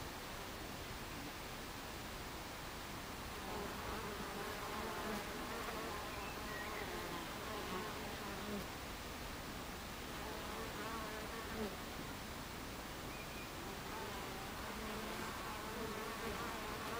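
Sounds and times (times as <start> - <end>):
honeybees buzzing: 3.3 - 8.6, 13.6 - 16.9.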